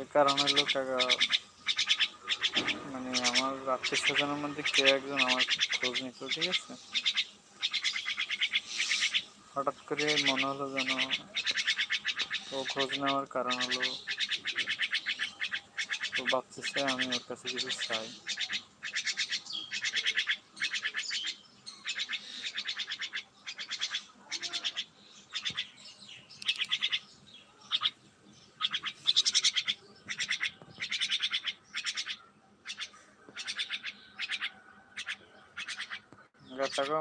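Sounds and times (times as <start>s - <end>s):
myna rattling calls: 0.0s - 37.0s.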